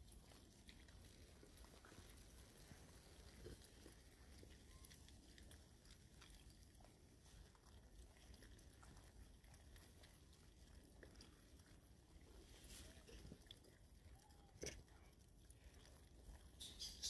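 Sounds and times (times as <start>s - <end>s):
low background hum: 0.0s - 17.0s
monkey chewing fruit: 0.0s - 17.0s.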